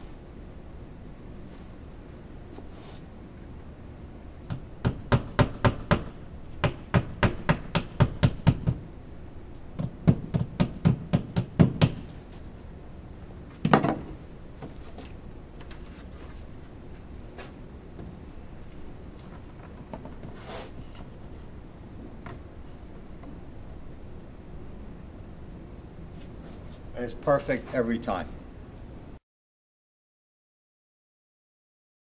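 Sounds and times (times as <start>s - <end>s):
hammer tapping a nail: 4.5s - 8.8s, 9.8s - 12.1s.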